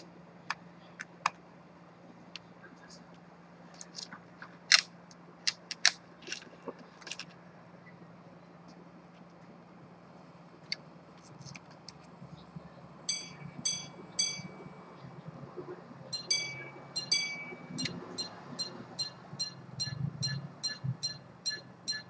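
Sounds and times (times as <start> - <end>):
pocket watch gong strikes: 13.1 - 14.7, 16.1 - 21.1.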